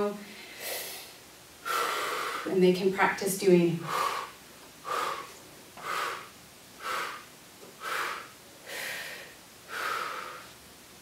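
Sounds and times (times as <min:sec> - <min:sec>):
person breathing hard in puffs: 0:00.2 - 0:02.5, 0:03.8 - 0:10.6.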